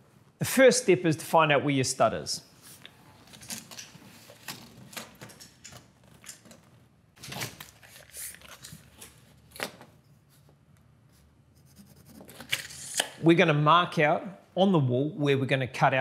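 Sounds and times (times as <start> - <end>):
tape measure and pencil clicks: 12.4 - 13.2.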